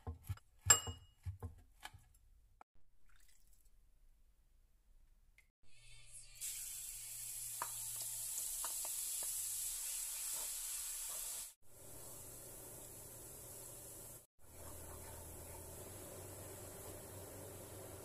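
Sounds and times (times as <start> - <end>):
garlic sizzling in hot oil: 5.7 - 14.3, 14.9 - 18.0.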